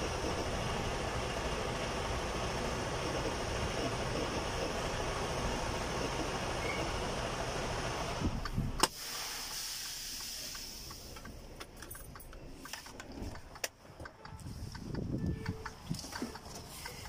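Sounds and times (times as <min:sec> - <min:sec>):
truck cab low rumble: 0:00.0 - 0:17.0
light clicks and rattles: 0:10.9 - 0:17.0.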